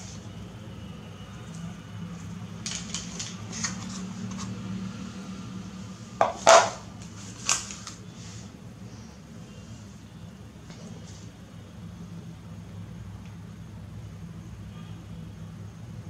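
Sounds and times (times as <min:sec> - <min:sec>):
cable and cardboard rustling: 0:01.4 - 0:04.6
objects knocking on stone floor: 0:06.2 - 0:06.8.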